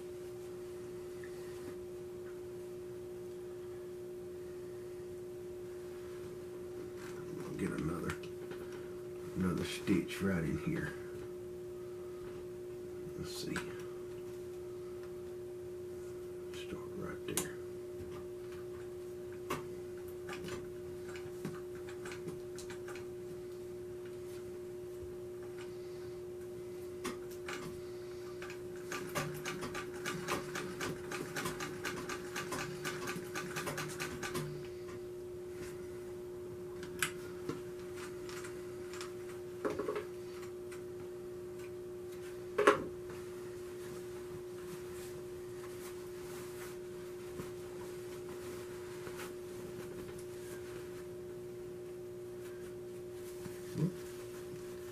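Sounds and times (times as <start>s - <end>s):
steady hum: 0.0s - 54.9s
sewing machine rapid clicking: 28.8s - 34.5s.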